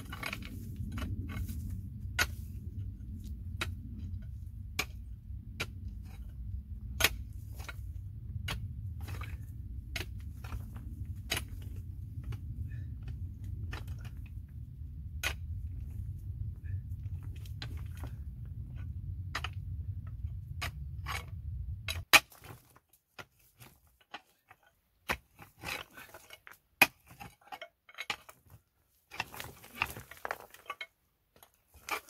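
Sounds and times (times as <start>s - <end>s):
digging tool striking stony soil: 0.0s - 2.6s, 3.5s - 14.4s, 15.1s - 16.0s, 21.9s - 30.8s, 31.4s - 32.0s.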